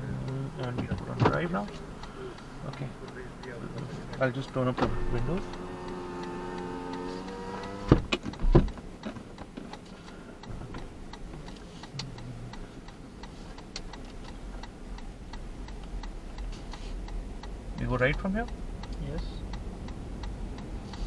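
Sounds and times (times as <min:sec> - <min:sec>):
faint car engine idling: 0:00.0 - 0:21.0
turn signal ticking: 0:00.0 - 0:21.0
power window motor whining: 0:04.9 - 0:08.1
window stopping with a thump: 0:07.8 - 0:08.7.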